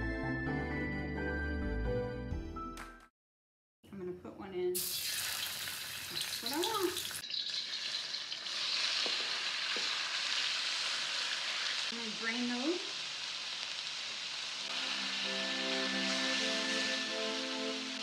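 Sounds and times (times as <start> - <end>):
pork sizzling in a wok: 4.8 - 18.0.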